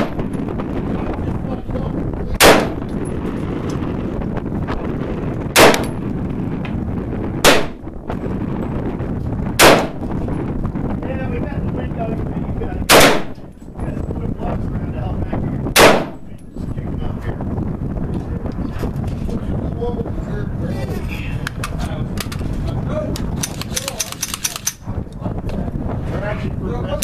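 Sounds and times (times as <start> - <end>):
rifle shots: 2.4 - 3.0, 5.6 - 6.0, 7.4 - 7.8, 9.6 - 10.1, 12.9 - 13.4, 15.8 - 16.3.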